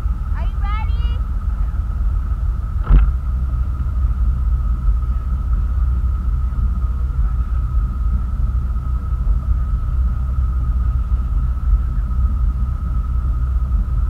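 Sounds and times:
motorboat engine rumble: 0.0 - 14.0
steady whine: 0.0 - 14.0
thump: 2.8 - 3.2.

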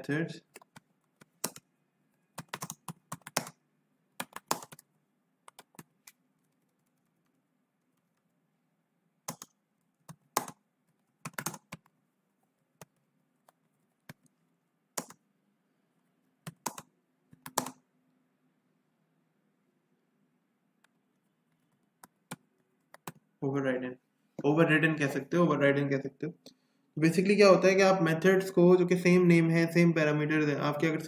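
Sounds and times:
computer keyboard typing: 0.5 - 1.7, 2.4 - 3.6, 4.2 - 8.4, 9.2 - 12.0, 15.0 - 15.2, 16.4 - 17.8, 21.4 - 23.2.

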